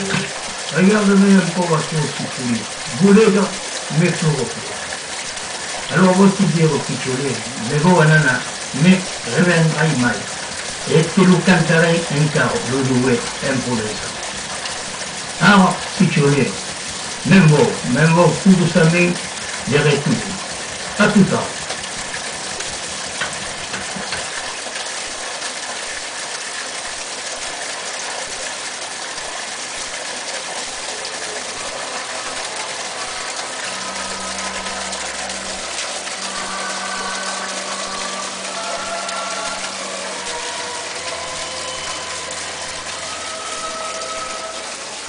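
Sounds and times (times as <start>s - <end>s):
low motor hum: 0.0s - 24.6s, 31.8s - 45.0s
running water: 0.0s - 45.0s.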